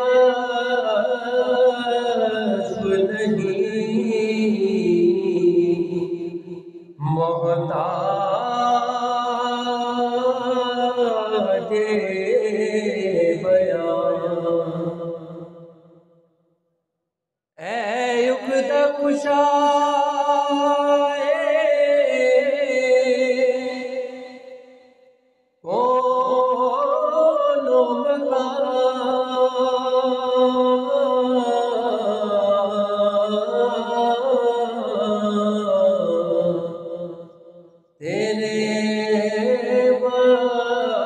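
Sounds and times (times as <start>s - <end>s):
man singing unaccompanied: 0.0s - 6.2s, 7.0s - 15.4s, 17.6s - 24.5s, 25.6s - 37.4s, 38.0s - 41.0s.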